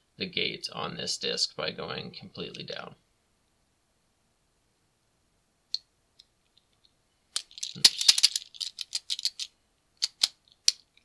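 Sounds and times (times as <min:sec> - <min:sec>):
padlock rattling: 0:07.4 - 0:10.8.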